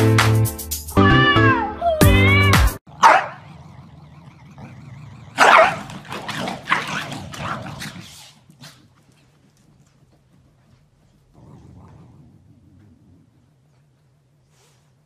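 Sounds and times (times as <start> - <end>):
dogs barking: 2.9 - 3.5, 4.6 - 8.2.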